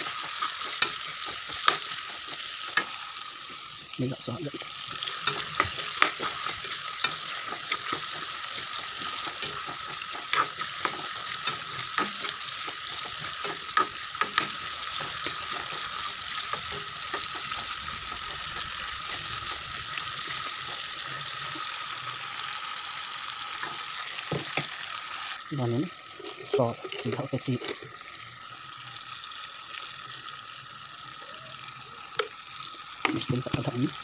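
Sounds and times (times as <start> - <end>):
spatula scraping and knocking pan: 0.0 - 3.0, 4.8 - 21.7
vegetables sizzling in hot oil: 0.0 - 34.0.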